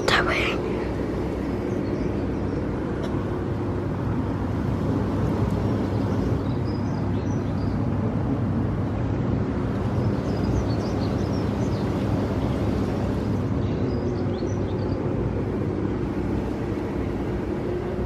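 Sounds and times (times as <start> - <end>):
pump motor hum: 0.0 - 18.0.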